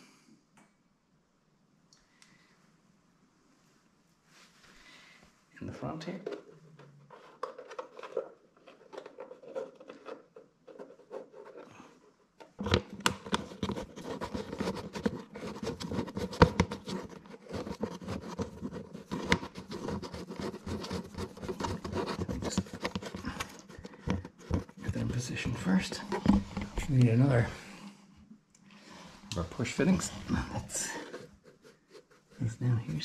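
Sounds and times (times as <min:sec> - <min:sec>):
fingers scraping on plastic: 0:12.5 - 0:25.2.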